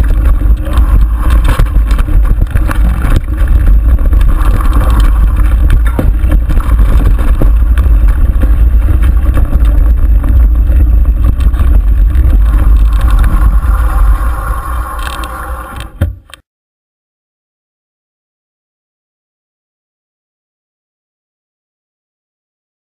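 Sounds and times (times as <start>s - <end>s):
tyres rolling on dirt: 0.0s - 16.3s
wind rumble on microphone: 0.0s - 16.3s
bike knocking and rattling: 0.0s - 16.4s.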